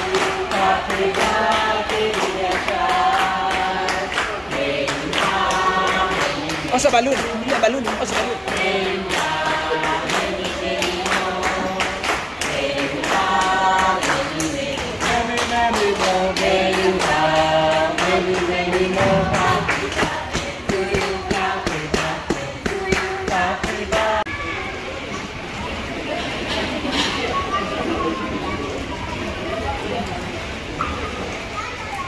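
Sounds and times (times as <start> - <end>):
group singing a celebration song: 0.0 - 24.3
rhythmic hand clapping: 0.0 - 24.3.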